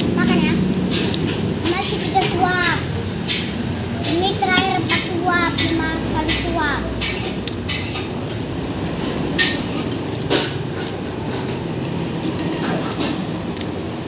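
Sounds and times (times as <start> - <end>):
street traffic hum: 0.0 - 14.0.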